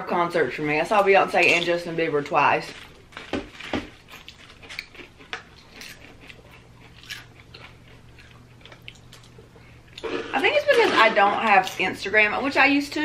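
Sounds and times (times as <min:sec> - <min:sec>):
chips crunching while chewed: 0:01.5 - 0:10.2.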